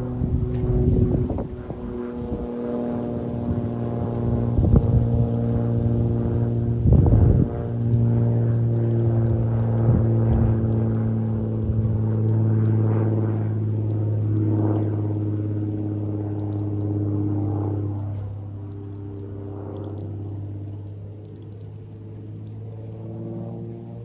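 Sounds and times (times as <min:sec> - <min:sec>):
wind buffeting microphone: 0:00.0 - 0:18.1
propeller plane droning: 0:00.0 - 0:24.0.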